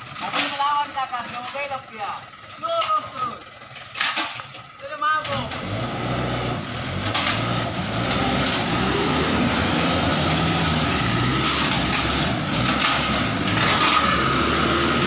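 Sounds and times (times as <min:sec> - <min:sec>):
diesel truck engine running: 0:00.0 - 0:15.0.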